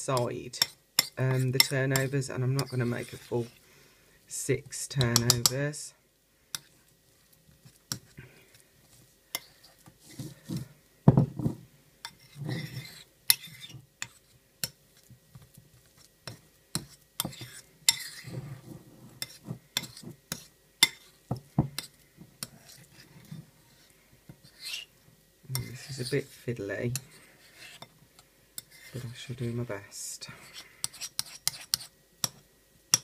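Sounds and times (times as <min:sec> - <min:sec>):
metal spoon scraping ceramic bowl: 0:00.6 - 0:03.6, 0:12.0 - 0:14.3, 0:16.3 - 0:21.2, 0:21.8 - 0:24.9, 0:26.9 - 0:27.9, 0:30.5 - 0:31.9.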